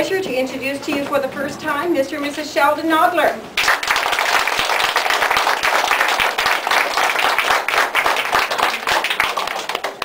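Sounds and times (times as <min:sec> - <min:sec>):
crowd applauding: 0:03.6 - 0:10.0.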